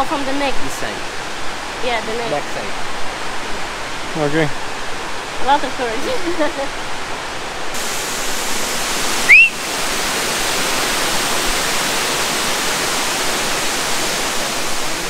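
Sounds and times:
flowing water rushing: 0:00.0 - 0:15.0
short rising chirp: 0:09.3 - 0:09.5.

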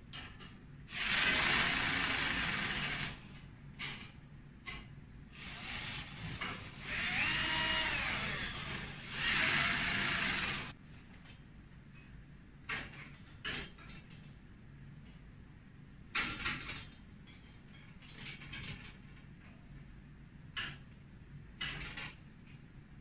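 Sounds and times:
cordless drill whining: 0:01.0 - 0:03.2, 0:05.4 - 0:10.7.

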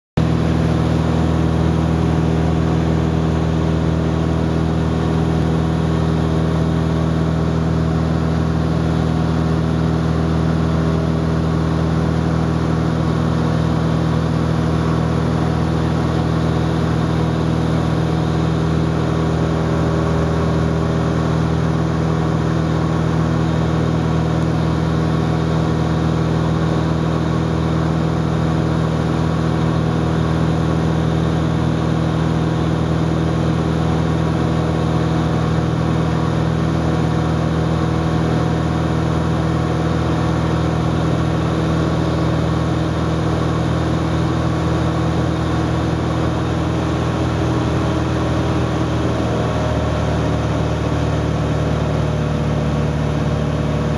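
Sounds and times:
airplane engines droning: 0:44.5 - 0:53.9.

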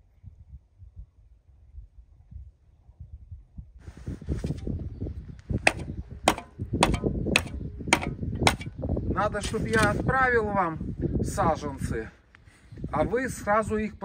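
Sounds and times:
handling and scraping noise: 0:03.8 - 0:04.8, 0:09.3 - 0:10.1
hoe chopping into soil: 0:05.6 - 0:08.8, 0:09.4 - 0:10.0.

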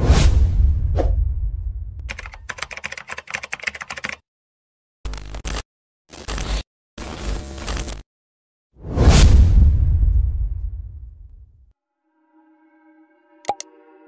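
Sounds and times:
deep low boom: 0:00.3 - 0:02.0
keyboard typing clicks: 0:02.1 - 0:04.2.

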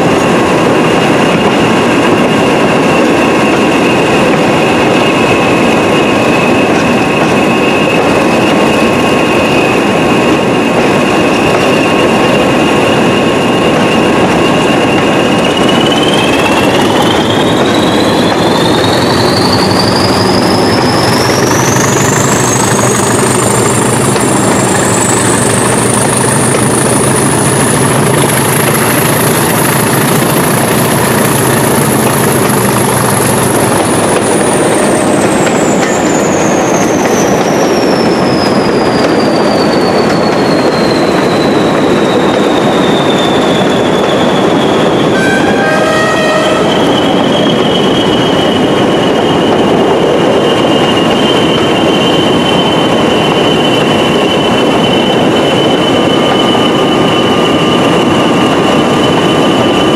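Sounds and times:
diesel locomotive running noise: 0:00.0 - 0:59.9
high whine rising in pitch: 0:11.8 - 0:36.8, 0:44.1 - 0:48.5
deep engine note: 0:45.2 - 0:47.0.

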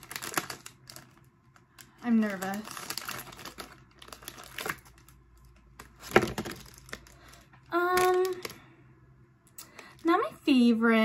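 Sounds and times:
plastic bag crinkling: 0:00.0 - 0:08.7.

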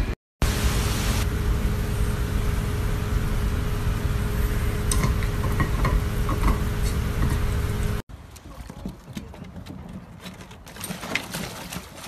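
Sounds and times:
low rumbling hum: 0:00.0 - 0:08.0.

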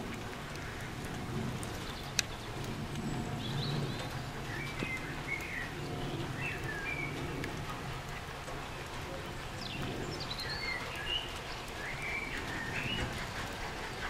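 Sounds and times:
rain: 0:00.0 - 0:14.0
steady low rumble: 0:00.0 - 0:14.0
sharp tick: 0:00.5 - 0:03.1
birds chirping: 0:00.5 - 0:14.0.

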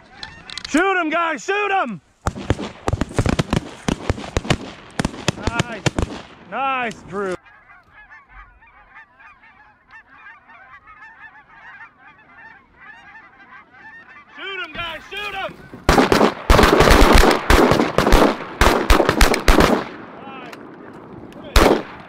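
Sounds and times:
geese honking: 0:00.0 - 0:00.8, 0:05.3 - 0:18.7
shotgun fire: 0:02.3 - 0:06.4, 0:15.9 - 0:20.0, 0:21.6 - 0:22.0.

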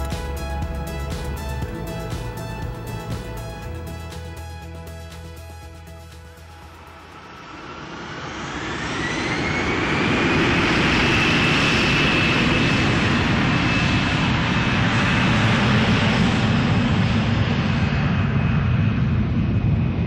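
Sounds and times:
jet engine whine: 0:00.0 - 0:20.0
rough jet engine noise: 0:06.4 - 0:20.0.

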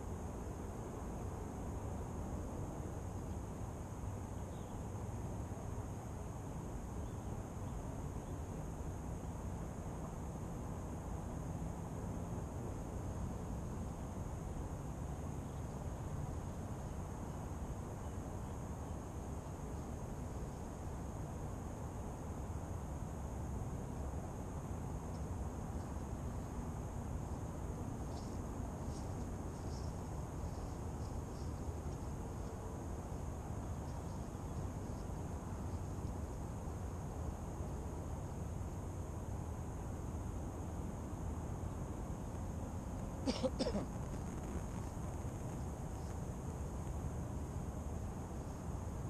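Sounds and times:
faint high-pitched hiss: 0:00.0 - 0:49.0
wind rumble on microphone: 0:43.8 - 0:49.0.

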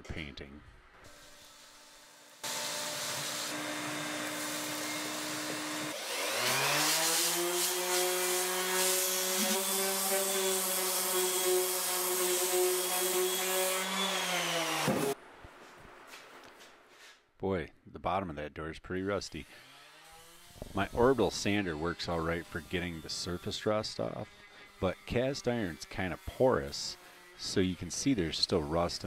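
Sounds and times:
vacuum cleaner running: 0:02.4 - 0:11.6, 0:12.4 - 0:15.2
orbital sander whining: 0:02.4 - 0:15.2.

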